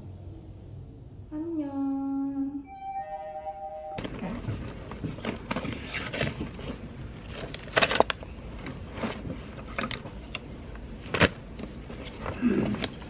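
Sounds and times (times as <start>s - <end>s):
papers rustling: 4.0s - 13.0s.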